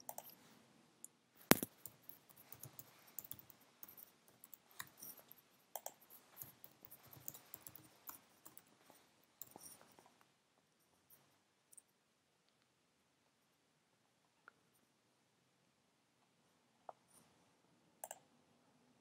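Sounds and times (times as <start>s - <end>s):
keyboard typing clicks: 0.0s - 0.4s, 1.5s - 8.7s, 18.0s - 18.2s.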